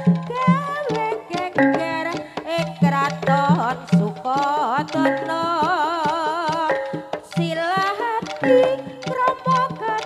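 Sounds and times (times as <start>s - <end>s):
hand drum strokes: 0.0s - 10.0s
wavering melody with vibrato: 0.0s - 10.0s.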